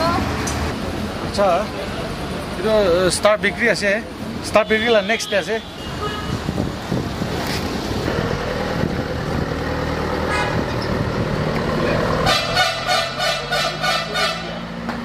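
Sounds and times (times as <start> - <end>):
short horn toots: 12.2 - 14.6.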